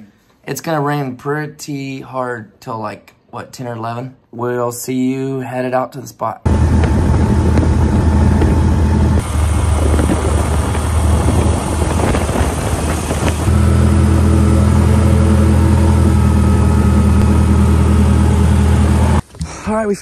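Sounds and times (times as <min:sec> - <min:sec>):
outboard motor running: 0:06.5 - 0:19.2.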